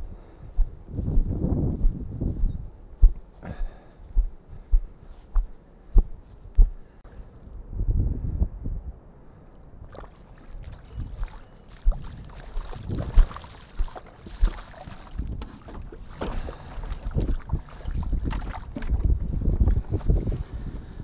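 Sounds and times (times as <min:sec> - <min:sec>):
wind buffeting microphone: 0:00.0 - 0:21.0
shallow water splashing: 0:09.6 - 0:20.1.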